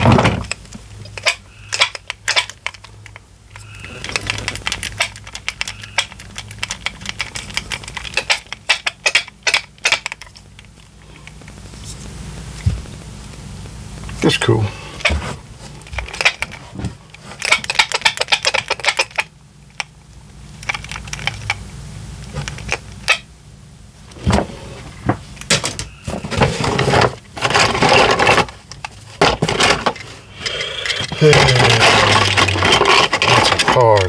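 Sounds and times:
plastic toys rattling in cardboard box: 0:03.6 - 0:10.4, 0:17.4 - 0:19.3, 0:26.1 - 0:34.0.

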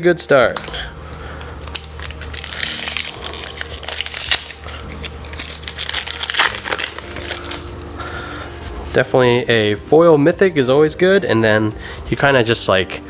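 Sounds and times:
foil wrapper crinkling and tearing: 0:01.6 - 0:08.4.

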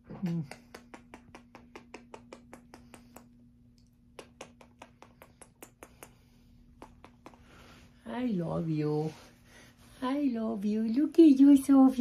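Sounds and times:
faint steady hum: 0:00.0 - 0:12.0
kitten licking wet clicks: 0:00.5 - 0:07.4.

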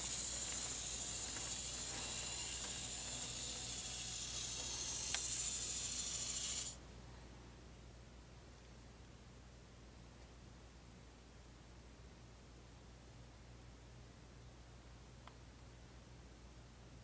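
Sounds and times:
high-pitched whirring hiss: 0:00.0 - 0:06.8.

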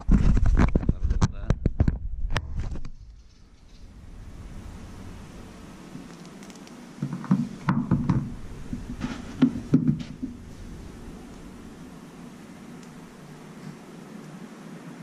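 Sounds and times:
fingers tapping on metal roof: 0:07.0 - 0:10.4.

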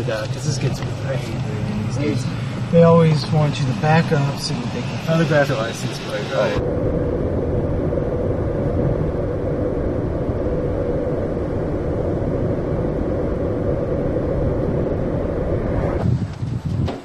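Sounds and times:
road and engine rumble in van: 0:00.0 - 0:04.3.

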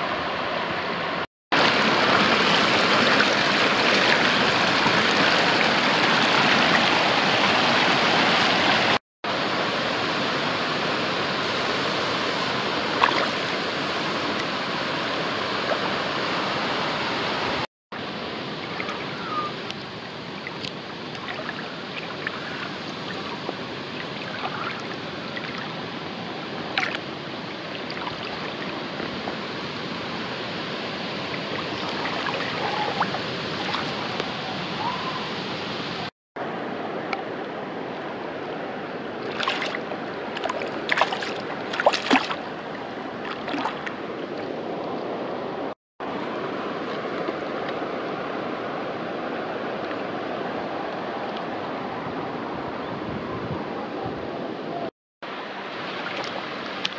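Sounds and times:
river water rushing: 0:00.0 - 0:53.0, 0:55.3 - 0:56.9
small water splashes: 0:01.6 - 0:09.0, 0:12.8 - 0:14.4, 0:18.6 - 0:29.2, 0:31.1 - 0:34.3, 0:39.1 - 0:45.1, 0:55.5 - 0:56.9.

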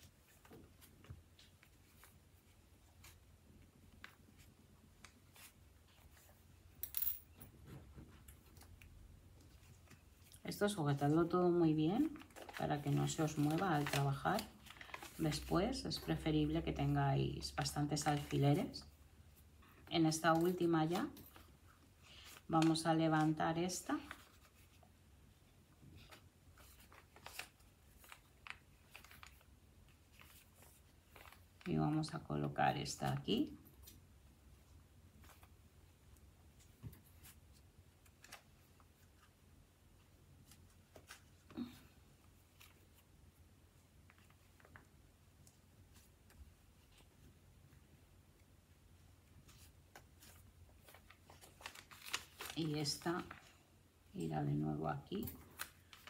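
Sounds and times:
fabric rustle: 0:00.0 - 0:32.0, 0:48.9 - 0:53.8
fabric rustling: 0:07.5 - 0:16.2, 0:33.3 - 0:53.7.

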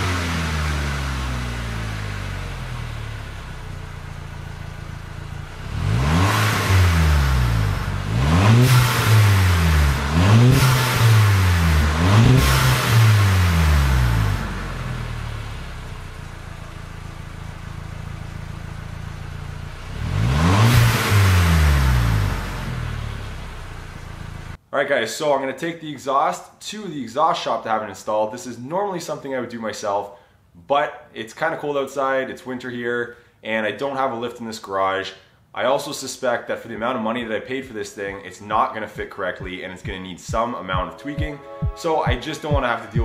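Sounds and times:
car engine idling and revving: 0:00.0 - 0:24.6.

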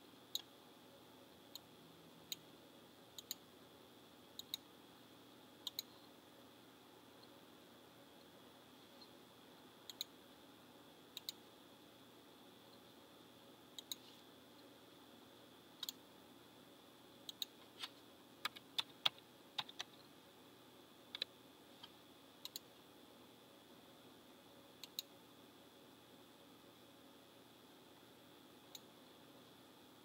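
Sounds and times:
keyboard keystrokes: 0:17.3 - 0:20.0.

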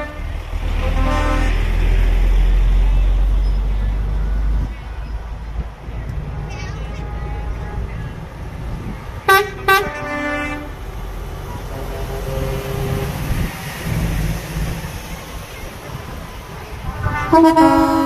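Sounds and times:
truck air horn blasts: 0:00.0 - 0:01.9, 0:09.3 - 0:10.9, 0:11.6 - 0:13.5, 0:16.8 - 0:18.0
truck engines rumbling: 0:00.0 - 0:18.0.

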